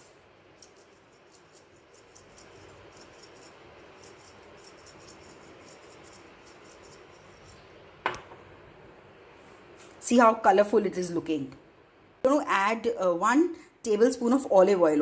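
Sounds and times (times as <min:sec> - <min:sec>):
chili flakes rattling in shaker: 0:00.4 - 0:07.6.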